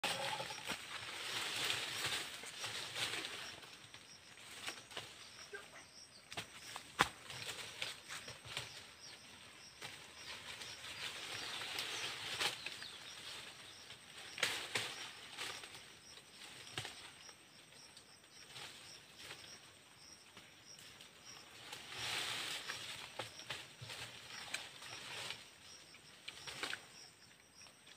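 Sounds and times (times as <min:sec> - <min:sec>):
dry leaves rustling: 0:00.0 - 0:05.6, 0:06.6 - 0:17.2, 0:21.0 - 0:27.0.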